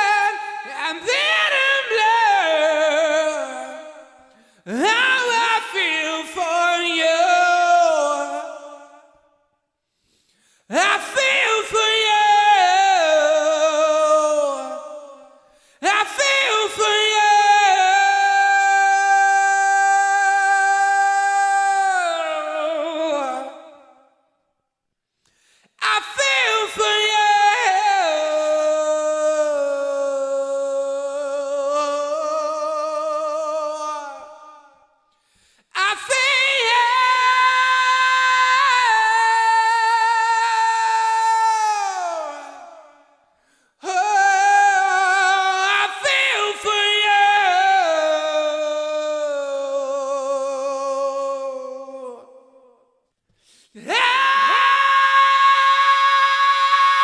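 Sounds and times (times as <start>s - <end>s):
man singing unaccompanied: 0.0s - 8.9s, 10.7s - 15.1s, 15.8s - 23.7s, 25.8s - 34.4s, 43.8s - 52.3s.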